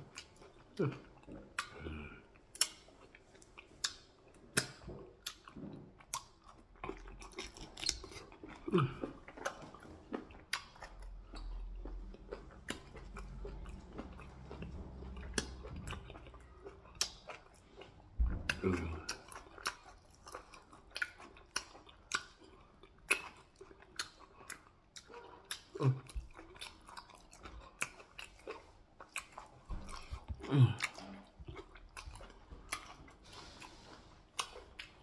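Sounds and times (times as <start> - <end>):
close chewing with wet smacks: 0.0 - 35.0.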